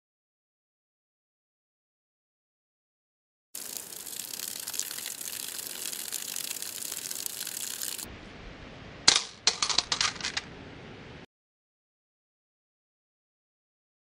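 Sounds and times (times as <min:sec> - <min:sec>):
water spraying on plastic: 0:03.6 - 0:08.1
plastic clack on stone: 0:09.1 - 0:10.5.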